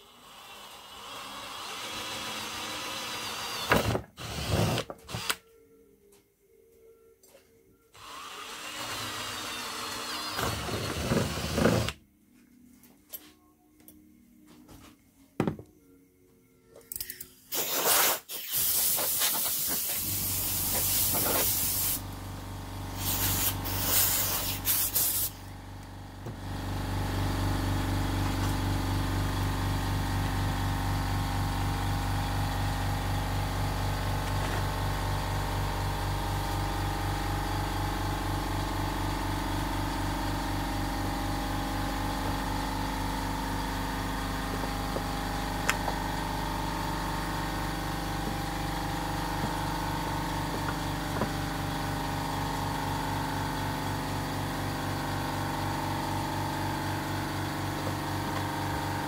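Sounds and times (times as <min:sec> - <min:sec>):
hissing bursts: 0:17.5 - 0:22.0, 0:23.0 - 0:25.4.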